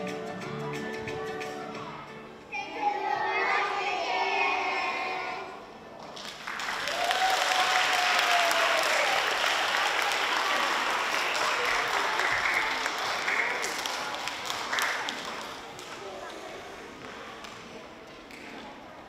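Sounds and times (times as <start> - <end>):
audience applauding: 6.2 - 16.1
drawn-out cheer: 6.8 - 13.0.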